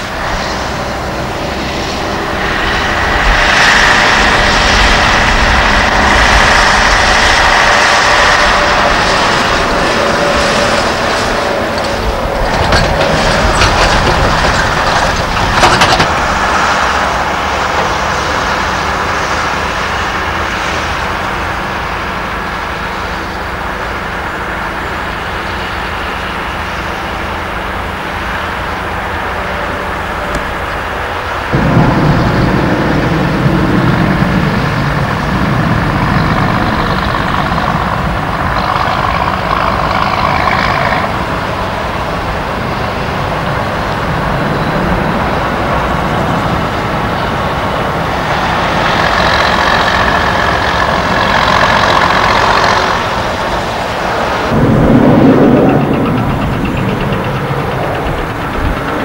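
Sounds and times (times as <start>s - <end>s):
diesel truck engine running: 0.0s - 59.0s
trailer rattling: 0.0s - 59.0s.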